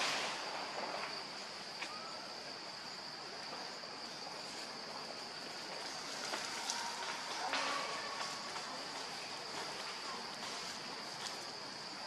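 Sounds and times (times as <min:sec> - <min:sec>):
faint chirp: 0:01.8 - 0:03.0.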